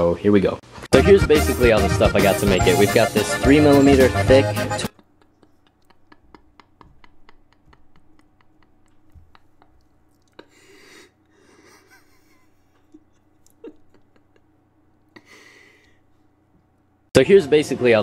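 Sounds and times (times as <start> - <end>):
man laughing breathily: 4.9 - 16.0.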